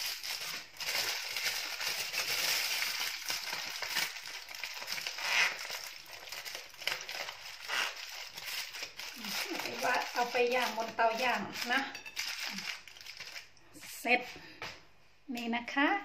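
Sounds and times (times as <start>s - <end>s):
aluminium foil crinkling: 0.0s - 13.8s.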